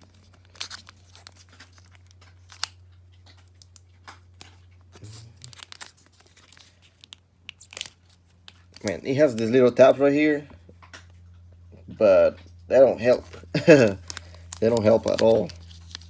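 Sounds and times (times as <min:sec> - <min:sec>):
sharp crackles of foil: 0:00.0 - 0:09.9, 0:13.0 - 0:16.0
foil wrapper crinkling: 0:00.0 - 0:10.0, 0:12.9 - 0:16.0.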